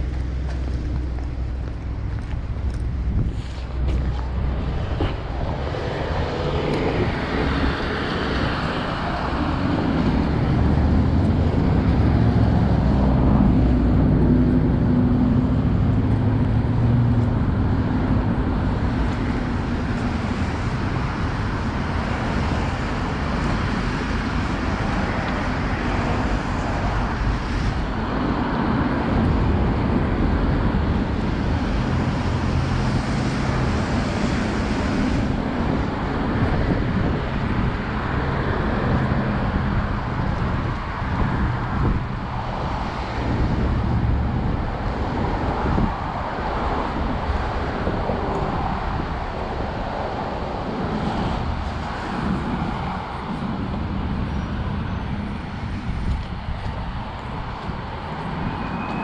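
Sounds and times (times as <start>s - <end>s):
cars passing on wet road: 0.0s - 59.0s
vehicle engine hum: 0.0s - 59.0s.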